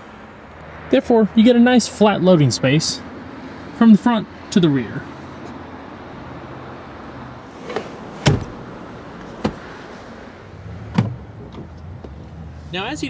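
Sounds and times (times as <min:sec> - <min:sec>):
car seatback latching clunks: 0:07.5 - 0:09.9, 0:10.9 - 0:12.3.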